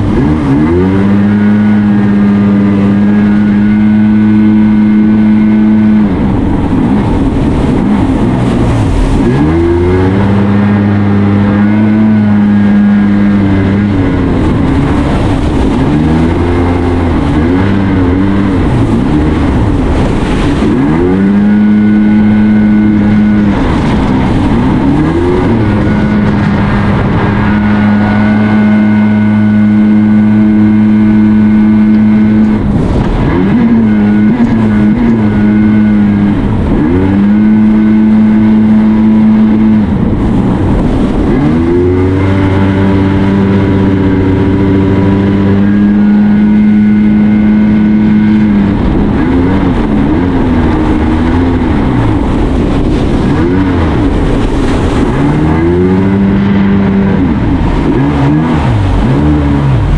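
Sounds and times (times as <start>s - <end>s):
watercraft engine revving: 0.0s - 59.9s.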